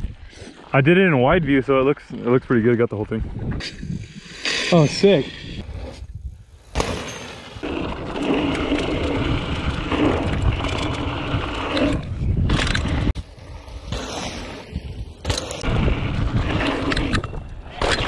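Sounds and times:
bike tyres rolling on dirt: 2.5s - 18.0s
wind on microphone: 8.8s - 13.9s, 14.5s - 17.9s.

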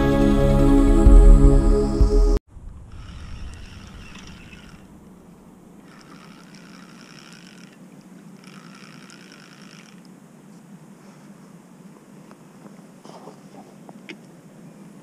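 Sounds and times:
fishing reel whirring: 2.9s - 4.9s, 5.8s - 10.1s.

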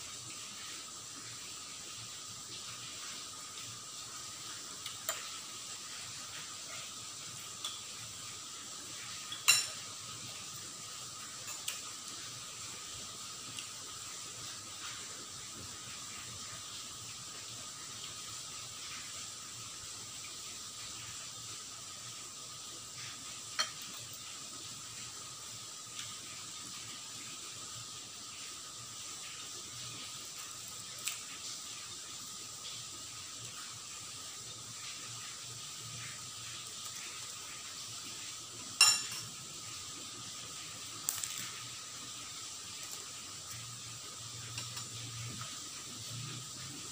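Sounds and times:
steady background hiss: 0.0s - 46.9s
spoon clinking on ceramic bowl: 9.3s - 9.8s, 38.8s - 39.3s.

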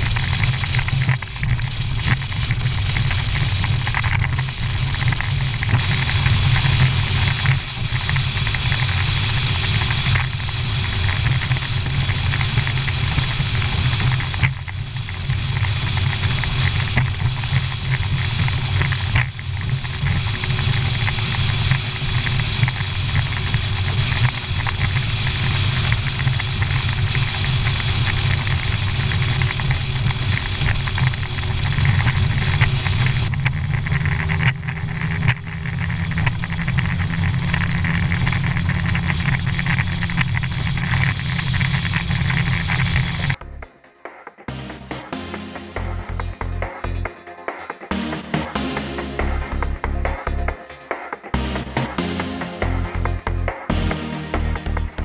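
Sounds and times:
outboard motor running at speed: 0.0s - 43.4s.

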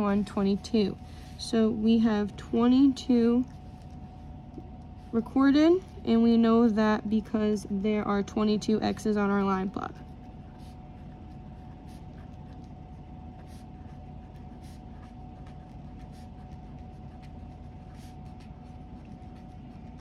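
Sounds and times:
steady low hum: 0.0s - 20.0s
pen scratching on paper: 4.6s - 20.0s.

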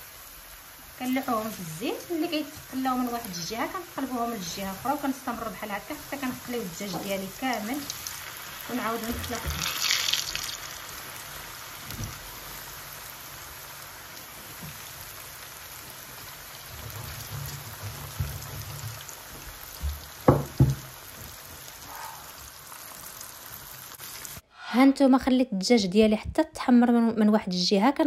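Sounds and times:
chicken deep-frying in oil: 0.0s - 24.4s
sharp knocks: 19.8s - 20.8s.

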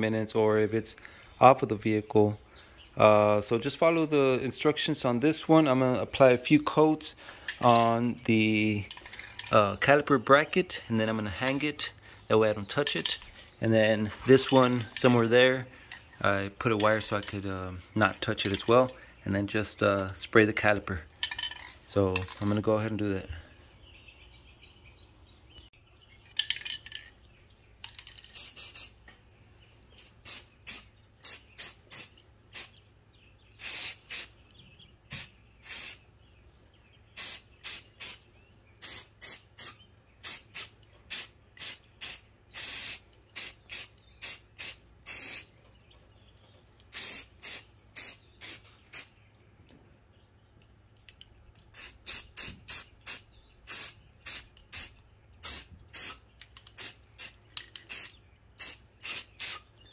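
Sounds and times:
aerosol can spraying: 28.3s - 29.0s, 33.6s - 34.3s, 35.1s - 36.0s, 38.8s - 45.5s, 47.0s - 49.1s, 51.7s - 59.6s.

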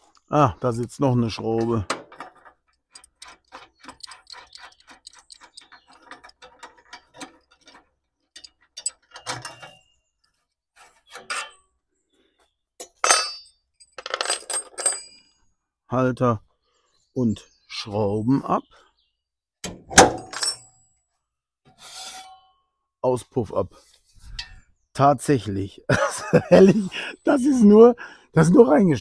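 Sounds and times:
metal clinks and clanks: 1.6s - 9.8s, 12.8s - 15.3s, 20.1s - 20.8s.

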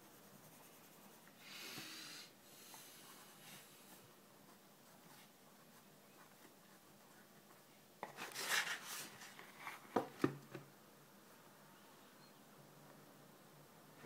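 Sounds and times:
sketchbook paper rustling: 4.9s - 10.0s.

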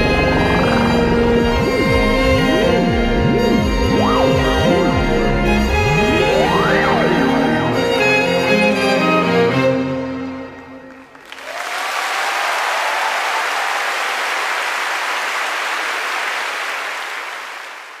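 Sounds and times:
audience applause: 0.0s - 2.7s, 10.5s - 18.0s
string ensemble chord: 0.0s - 11.0s.

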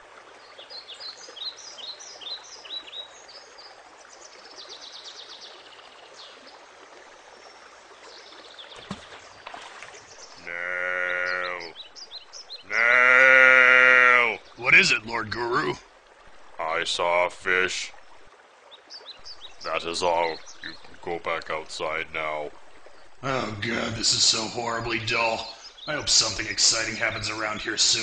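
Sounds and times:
outdoor ambience: 8.8s - 18.6s, 19.2s - 28.0s
long bleat-like calls: 10.4s - 11.8s, 12.7s - 14.4s.

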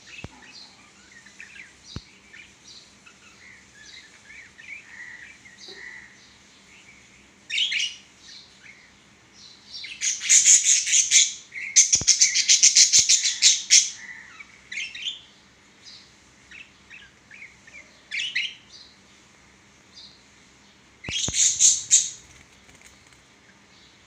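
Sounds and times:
budgerigars chirping and chattering: 9.8s - 15.2s, 21.0s - 22.3s.

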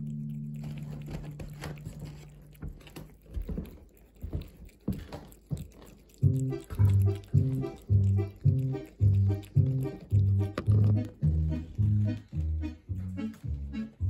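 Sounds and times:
cat eating wet food: 0.0s - 14.0s
music with pulsing bass: 10.2s - 14.0s.

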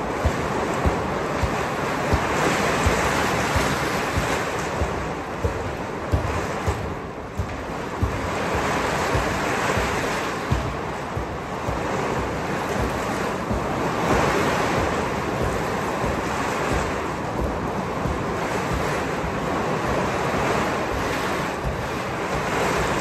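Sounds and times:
football being kicked: 0.0s - 19.4s
rain on a metal roof: 0.0s - 23.0s.

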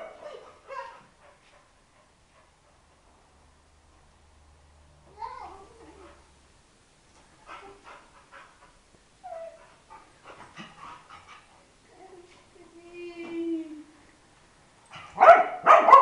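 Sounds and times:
dog whimpering and yipping: 9.2s - 9.7s
dog whining low: 9.2s - 9.8s.

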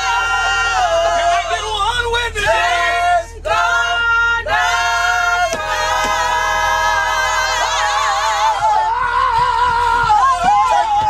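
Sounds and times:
voices singing in harmony: 0.0s - 11.0s.

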